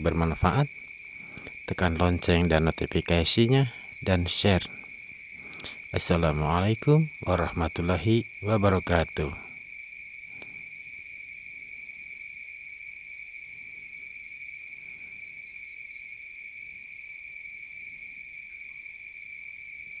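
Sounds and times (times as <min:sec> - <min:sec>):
crickets trilling: 0:00.0 - 0:20.0.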